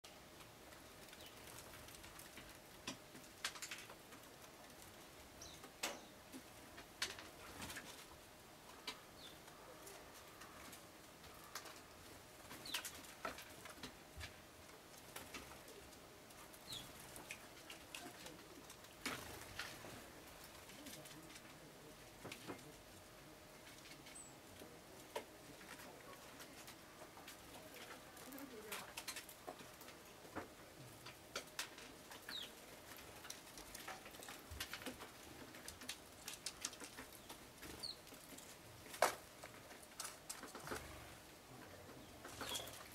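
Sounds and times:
sparrows chirping: 0:00.8 - 0:01.7, 0:05.0 - 0:06.3, 0:08.7 - 0:13.8, 0:16.4 - 0:19.0, 0:23.9 - 0:24.5, 0:32.0 - 0:34.6, 0:36.2 - 0:42.9.

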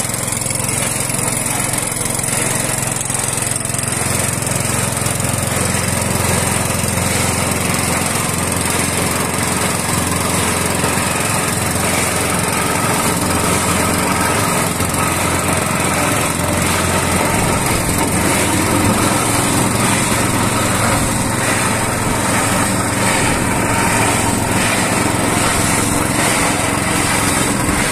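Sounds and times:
small petrol engine running: 0:00.0 - 0:27.9.

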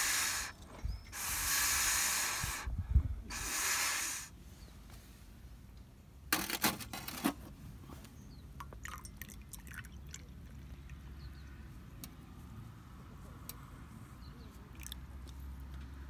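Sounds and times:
coffee pouring into mug: 0:08.8 - 0:10.7.

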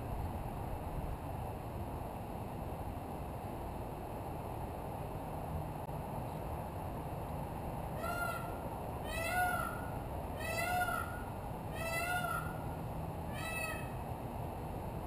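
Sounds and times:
peacock calling: 0:08.0 - 0:14.1.

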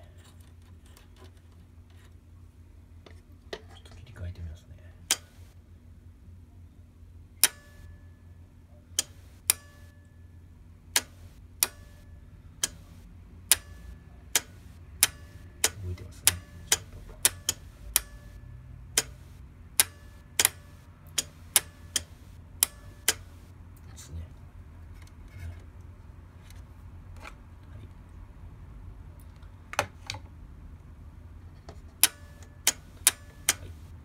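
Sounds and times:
steady low hum: 0:00.0 - 0:34.0
sharp metallic clicks: 0:05.1 - 0:05.6, 0:07.4 - 0:07.9, 0:09.0 - 0:09.9, 0:10.9 - 0:23.5, 0:32.0 - 0:34.0.

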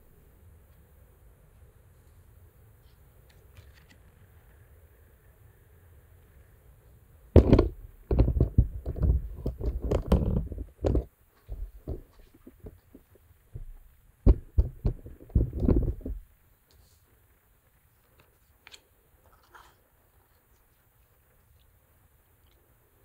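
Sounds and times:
phone handling thumps: 0:07.4 - 0:12.8, 0:13.6 - 0:16.2.

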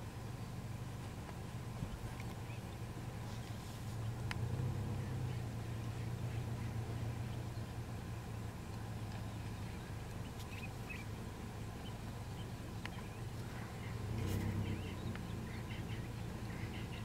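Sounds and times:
steady low hum: 0:00.0 - 0:17.0
bird chirps: 0:09.2 - 0:11.2, 0:11.8 - 0:17.0.

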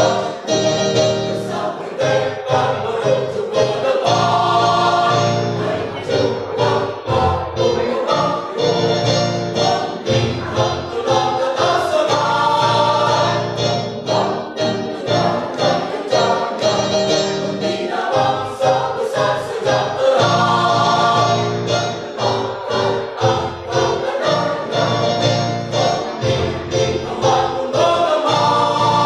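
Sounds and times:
mixed choir singing a march: 0:00.0 - 0:29.0.

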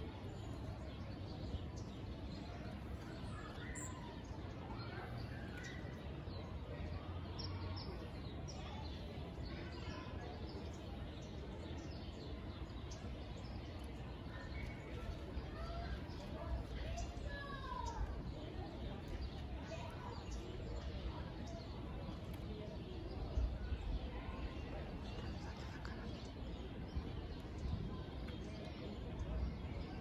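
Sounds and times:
distant murmur of voices: 0:00.0 - 0:30.0
faint bird chirps: 0:03.0 - 0:05.9.

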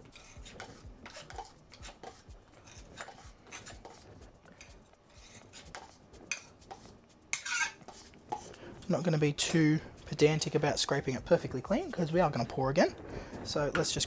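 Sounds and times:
paint scraping: 0:00.0 - 0:12.4.

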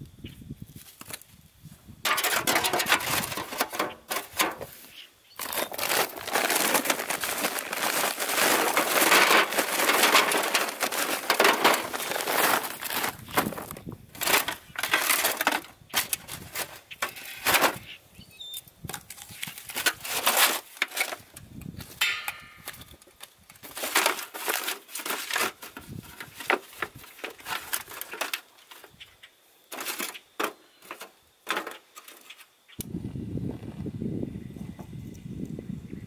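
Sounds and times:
briquettes scraping and knocking: 0:02.0 - 0:17.9, 0:18.9 - 0:29.1, 0:29.7 - 0:32.6
foil pan crinkling: 0:02.1 - 0:04.8, 0:05.4 - 0:17.8, 0:18.9 - 0:29.0, 0:29.7 - 0:32.3.

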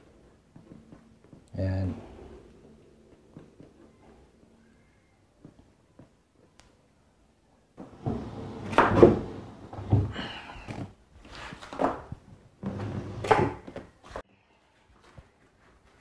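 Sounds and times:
ottoman scraping across wooden floor: 0:07.8 - 0:12.0, 0:12.6 - 0:14.2.

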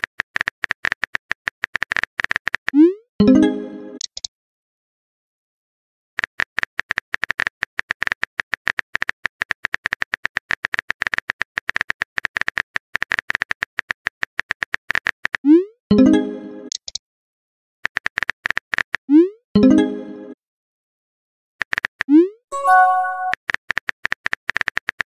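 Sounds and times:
message notification tone: 0:03.2 - 0:04.0, 0:15.9 - 0:16.7, 0:19.6 - 0:20.3, 0:22.5 - 0:23.4.

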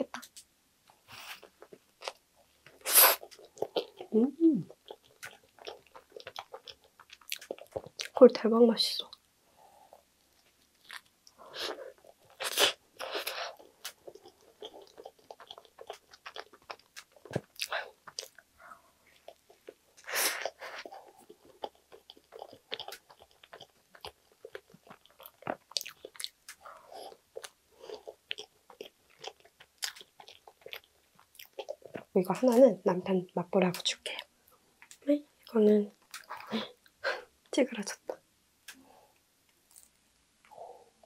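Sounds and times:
person chewing sandwich: 0:00.2 - 0:04.1, 0:04.7 - 0:08.2, 0:09.9 - 0:32.1, 0:36.0 - 0:37.0, 0:39.5 - 0:40.6
sticky mouth clicks: 0:04.7 - 0:08.2, 0:22.8 - 0:23.1, 0:36.0 - 0:36.6.

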